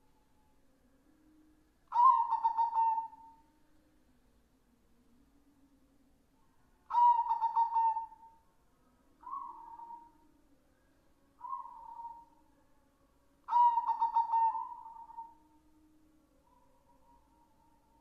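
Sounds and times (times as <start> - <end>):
dove cooing: 1.9 - 3.4, 6.9 - 8.4, 9.2 - 10.2, 11.4 - 12.3, 13.5 - 15.4.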